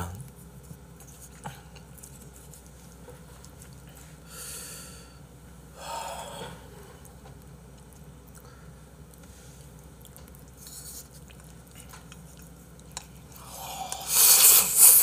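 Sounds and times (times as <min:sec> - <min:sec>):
mouth sounds eating: 0:05.9 - 0:15.0
short noisy breaths: 0:13.4 - 0:15.0.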